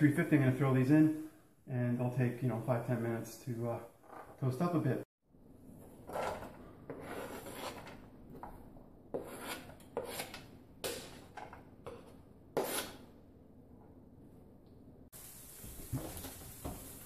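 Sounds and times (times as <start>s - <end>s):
onion scraped off cutting board: 6.0s - 8.0s, 9.2s - 11.3s, 11.9s - 13.0s.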